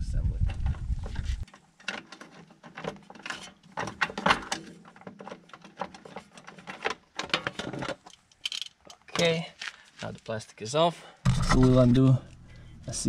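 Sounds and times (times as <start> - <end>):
hand tools clicking and rattling: 1.4 - 9.2.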